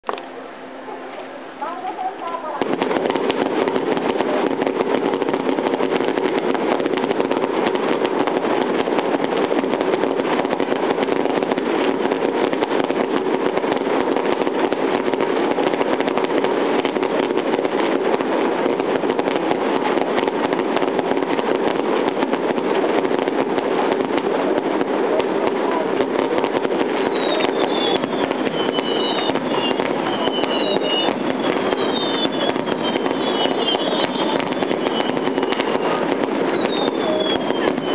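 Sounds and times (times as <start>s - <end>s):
fireworks bursts and crackle: 0.0s - 37.9s
falling whistles: 26.3s - 37.9s.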